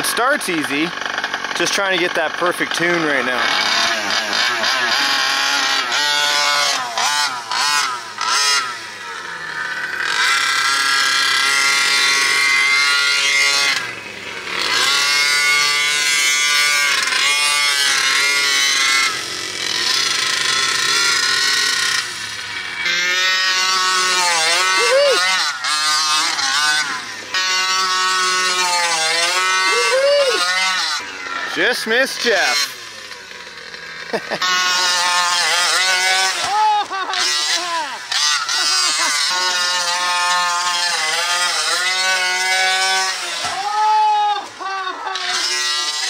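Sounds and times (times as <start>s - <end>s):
small two-stroke engines revving: 0.0s - 46.0s.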